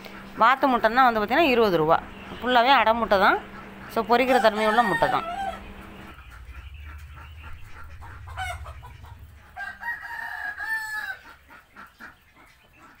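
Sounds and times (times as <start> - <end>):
chickens clucking: 0.0 - 13.0
rooster crowing: 3.7 - 6.2, 7.1 - 11.4.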